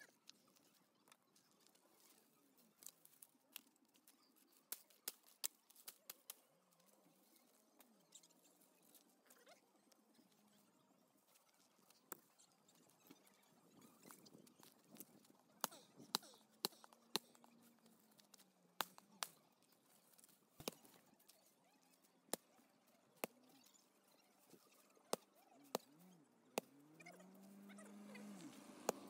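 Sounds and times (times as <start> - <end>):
branches chopped and cracking: 18.2 - 19.4, 20.2 - 21.0.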